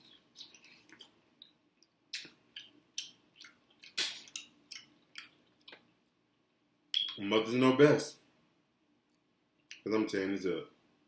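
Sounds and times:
wet chewing and lip-smacking: 0.0s - 6.0s.

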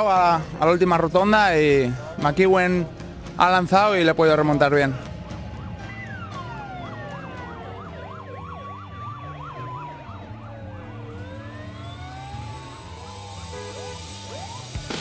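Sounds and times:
sirens wailing and yelping: 4.6s - 15.0s.

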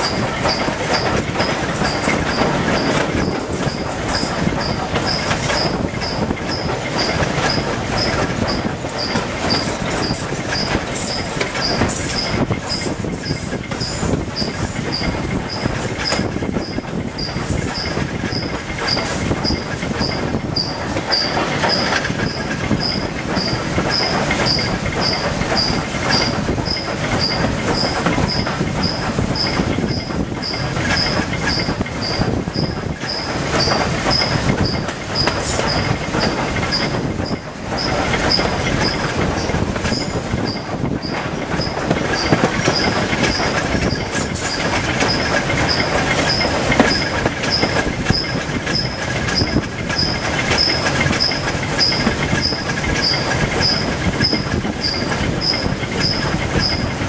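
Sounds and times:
rumble and clatter of train wheels: 0.0s - 57.0s.

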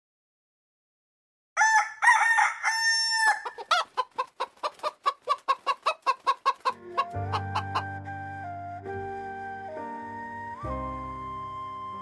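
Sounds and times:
rooster crowing: 1.6s - 3.8s
rapid short clucks: 3.7s - 6.8s
music: 6.8s - 12.0s.

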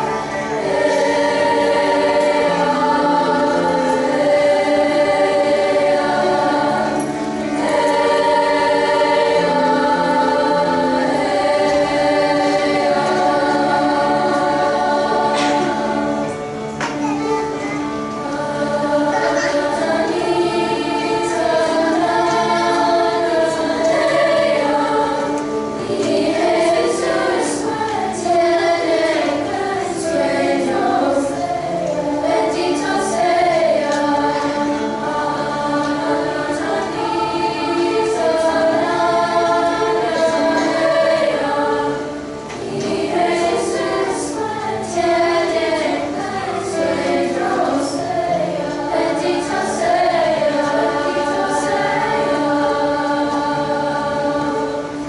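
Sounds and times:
girls choir singing in harmony: 0.0s - 55.0s
piano accompaniment: 0.0s - 55.0s.

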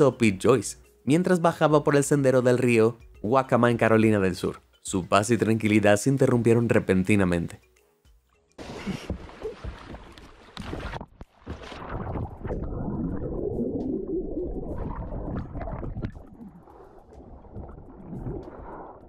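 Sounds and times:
river water splashing: 8.6s - 12.6s.

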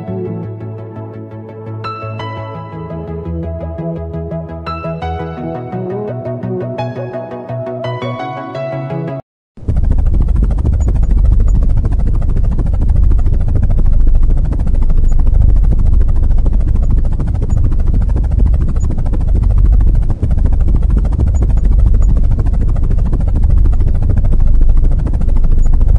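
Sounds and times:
small motor spinning propeller: 9.6s - 25.9s.

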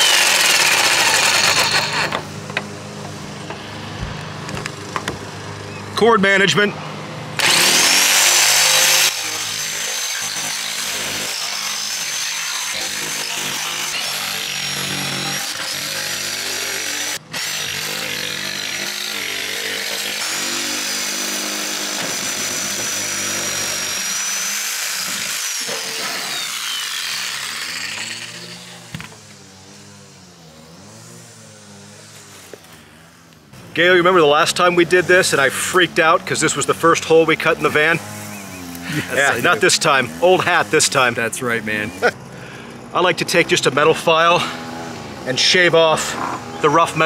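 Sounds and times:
reciprocating saw cutting metal: 0.0s - 3.9s, 7.4s - 42.2s.

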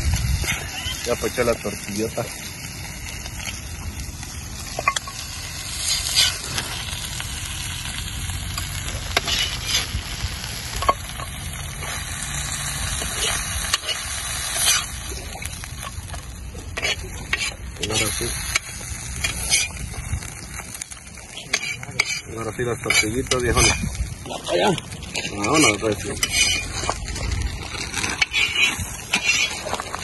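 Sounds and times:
food sizzling in a pan: 0.0s - 30.0s
metal spatula scraping a pan: 4.7s - 6.5s, 8.6s - 10.0s, 13.0s - 15.1s, 16.6s - 19.8s, 21.3s - 24.4s, 25.1s - 27.1s, 27.8s - 30.0s.

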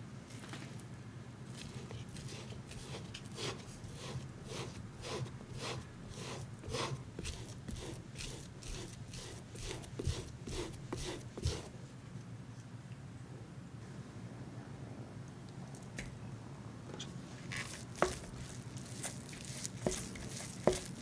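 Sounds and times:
spatula scraping through sieve: 1.6s - 11.7s, 17.4s - 21.0s.

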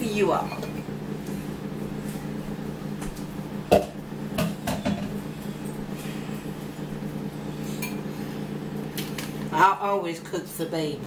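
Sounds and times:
steady low hum: 0.0s - 11.0s
kitchenware knocking and clattering: 3.7s - 5.2s.

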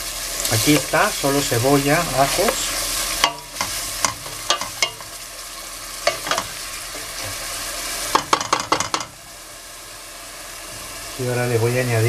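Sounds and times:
onion sizzling in oil: 0.0s - 12.0s
wooden spoon knocking against pot: 8.1s - 9.2s.

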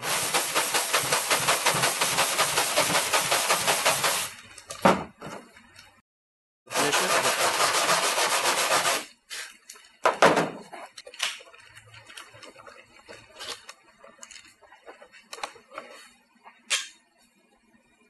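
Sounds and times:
wire brush scrubbing metal: 6.7s - 9.1s.

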